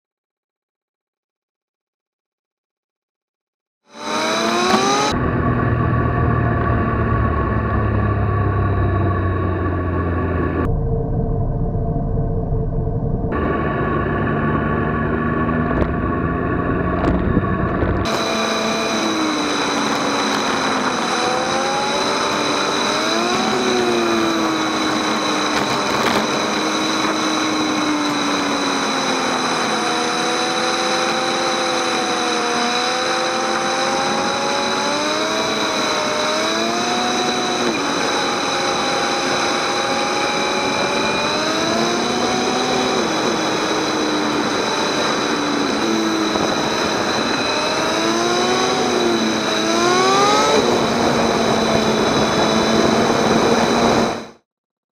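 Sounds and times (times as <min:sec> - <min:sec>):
motorcycle engine accelerating: 0:03.8 - 0:54.5
wind and road noise: 0:03.9 - 0:54.4
short sound: 0:05.1 - 0:18.4.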